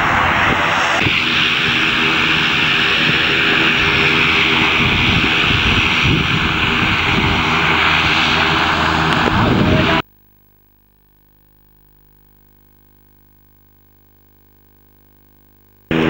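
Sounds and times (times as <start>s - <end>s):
loud engine drone: 0.0s - 10.0s
rushing noise: 0.0s - 10.0s.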